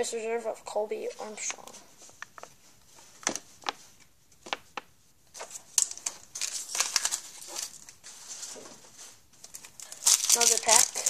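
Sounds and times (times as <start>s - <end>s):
card pack wrapper crinkling: 5.4s - 8.5s, 9.4s - 11.0s.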